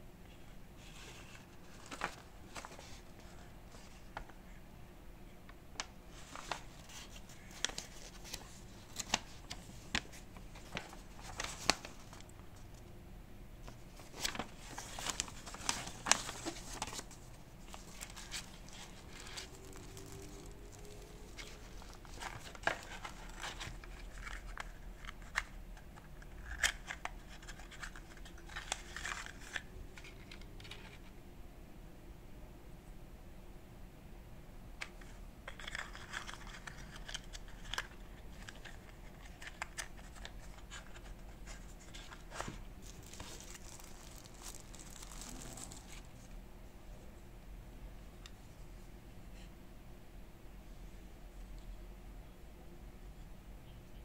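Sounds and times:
paper and cardboard crinkling: 0.8s - 4.0s, 6.1s - 12.7s, 13.7s - 25.5s, 35.0s - 46.3s.

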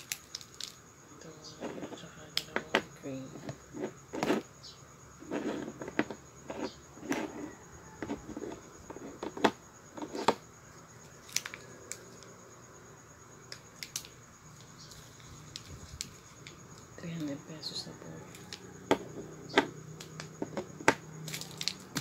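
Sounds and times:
plastic jars clicking and tapping: 18.3s - 22.0s.

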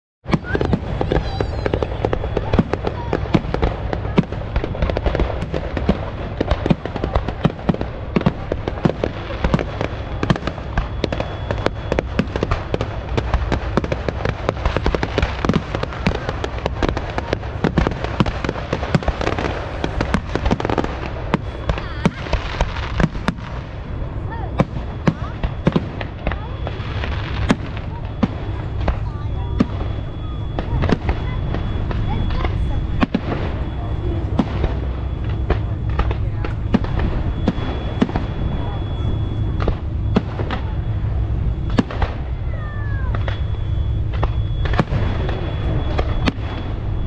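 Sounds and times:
fireworks bursting: 0.2s - 47.0s
fireworks crackling: 0.2s - 47.0s.

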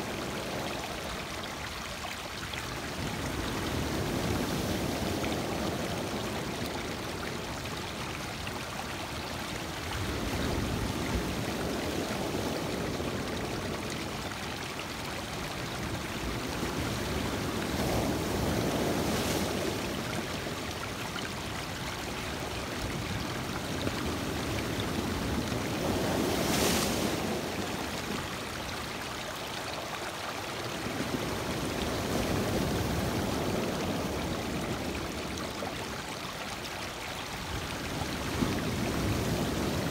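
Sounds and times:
surf breaking on rocks: 25.7s - 27.6s.

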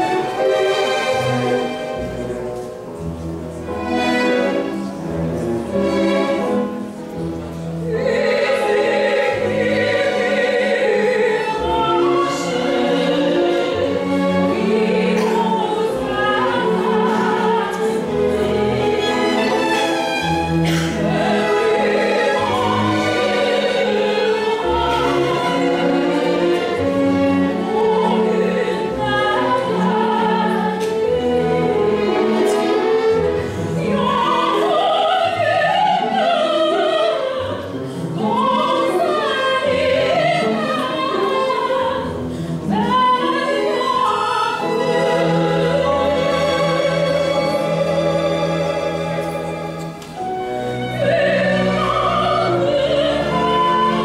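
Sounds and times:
string orchestra playing: 0.0s - 54.0s
woman singing operatically: 7.9s - 18.6s, 33.8s - 37.6s, 38.2s - 49.0s, 50.9s - 54.0s.

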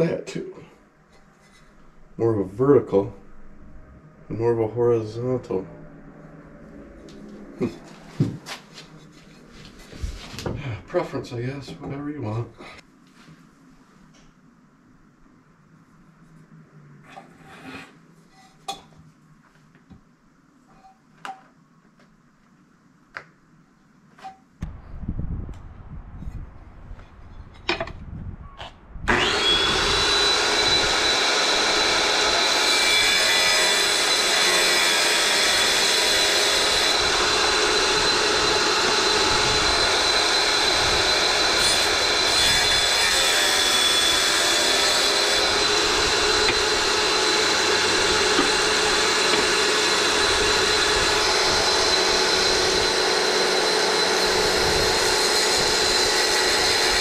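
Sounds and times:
tile saw whining: 5.2s - 10.5s, 28.6s - 57.0s
saw blade cutting ceramic tile: 17.1s - 18.0s, 29.1s - 57.0s.

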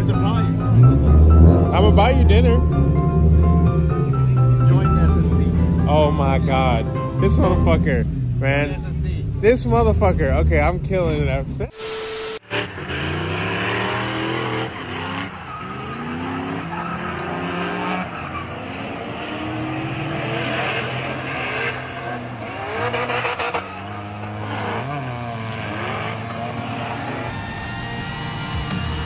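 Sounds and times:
car engine revving: 0.0s - 29.0s
static noise burst: 11.7s - 12.5s
tyres squealing and skidding: 11.8s - 29.0s.

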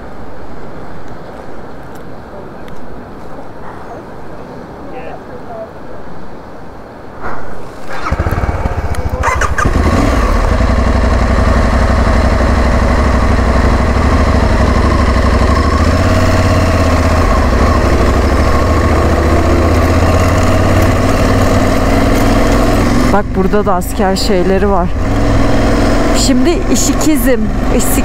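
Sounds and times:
motorcycle engine starting and idling: 7.8s - 28.0s.

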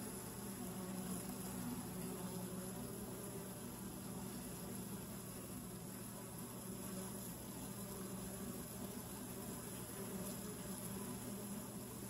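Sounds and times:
bees buzzing: 0.0s - 12.0s.

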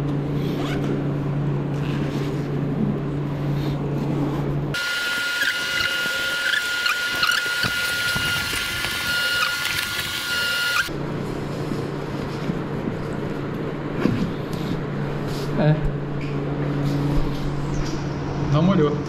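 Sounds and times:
high whine with squeaky chirps: 4.8s - 10.9s.

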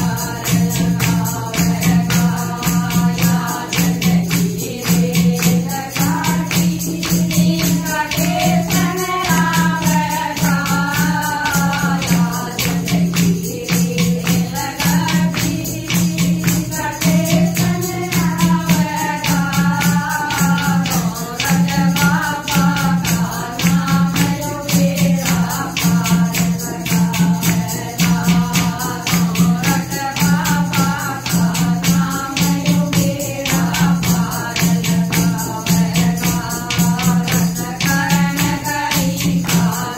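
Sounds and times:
clay pot drum beat: 0.0s - 39.9s
hand-clapping: 0.0s - 39.9s
women singing together: 0.0s - 39.9s.

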